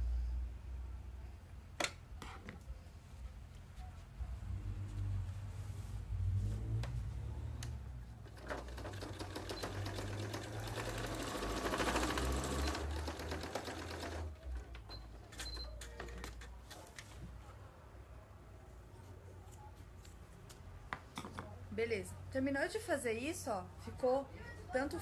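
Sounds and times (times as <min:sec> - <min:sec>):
sewing machine stitching: 0:08.3 - 0:16.1.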